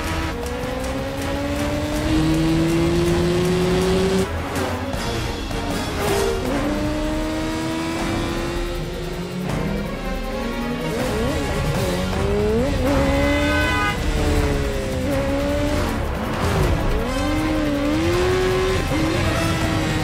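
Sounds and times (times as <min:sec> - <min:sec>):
film score music: 0:00.0 - 0:20.0
motorcycle engines revving: 0:00.0 - 0:20.0.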